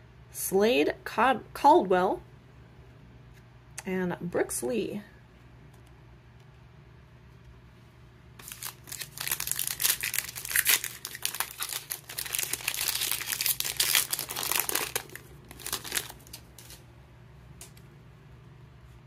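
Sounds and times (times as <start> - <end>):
wrapper crinkling and tearing: 8.4 - 16.8.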